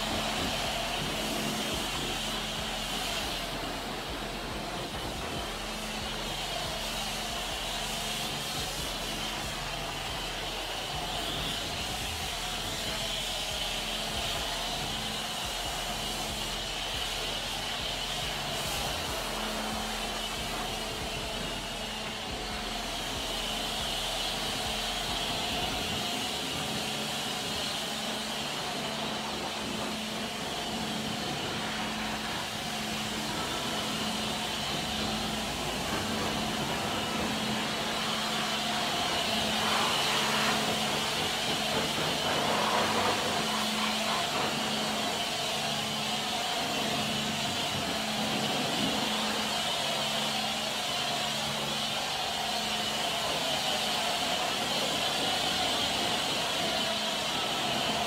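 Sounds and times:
low pulsing hum: 0.0s - 46.0s
pressure washer water jet hissing: 0.0s - 58.0s.

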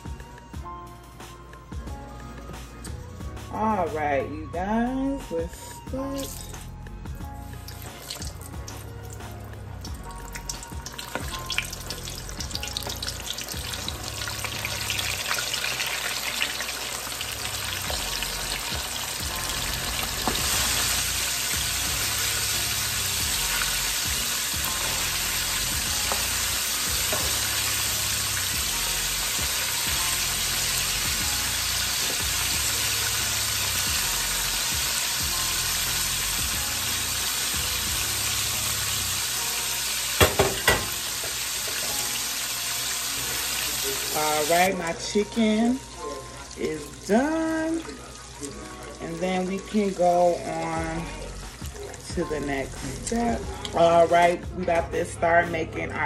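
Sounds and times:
chicken frying in hot oil: 9.9s - 53.3s.

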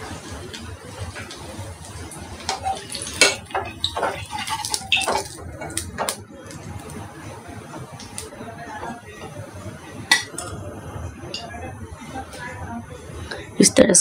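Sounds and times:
oil sizzling: 0.0s - 10.6s.

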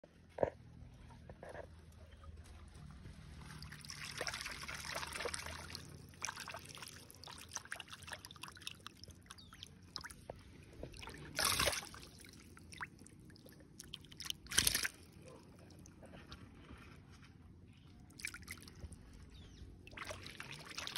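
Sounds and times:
water trickling: 3.5s - 15.2s, 19.9s - 20.9s
hand splashing in water: 10.9s - 13.1s, 13.8s - 15.2s.

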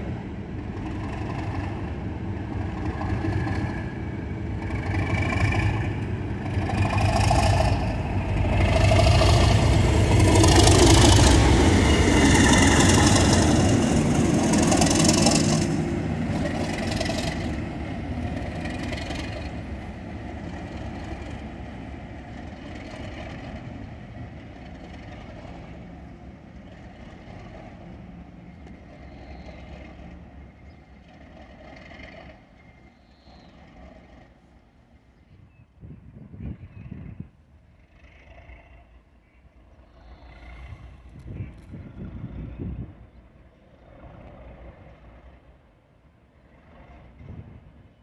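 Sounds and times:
diesel locomotive passing: 0.0s - 48.0s.

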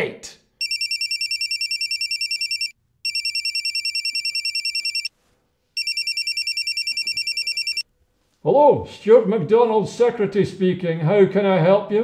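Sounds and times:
telephone ringing: 0.6s - 5.1s, 5.8s - 7.9s.

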